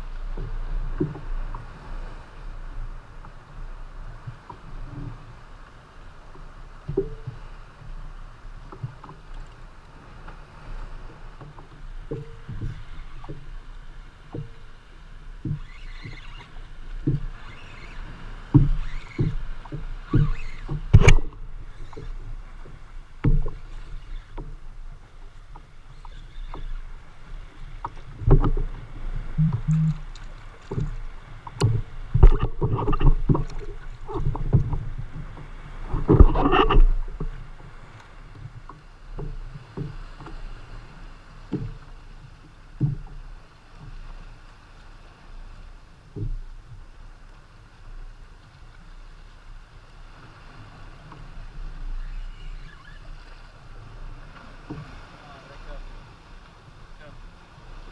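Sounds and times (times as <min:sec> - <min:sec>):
water lapping at hull: 0:00.0 - 0:57.9.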